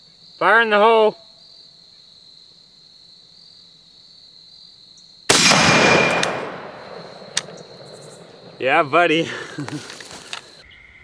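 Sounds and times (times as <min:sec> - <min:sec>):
crickets chirping: 0:00.0 - 0:11.0
rifle shot: 0:05.3 - 0:08.9.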